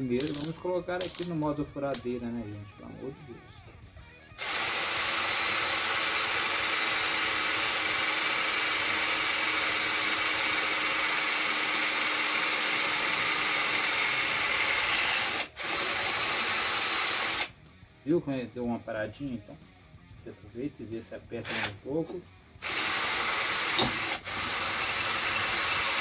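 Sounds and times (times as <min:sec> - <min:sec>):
cordless drill boring into steel: 0:04.4 - 0:17.5, 0:21.4 - 0:21.8, 0:22.6 - 0:26.0.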